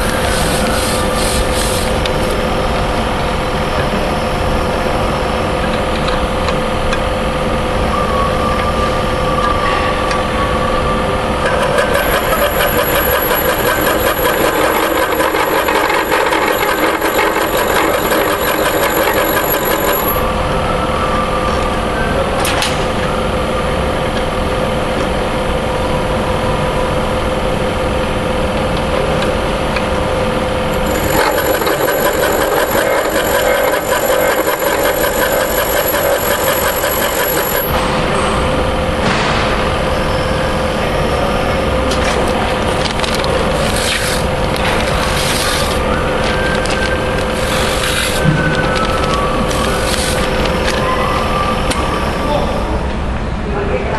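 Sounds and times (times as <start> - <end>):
grinder humming: 0.0 - 2.6, 11.4 - 20.2, 30.7 - 37.9, 42.8 - 50.8
thin high whine: 0.0 - 53.0.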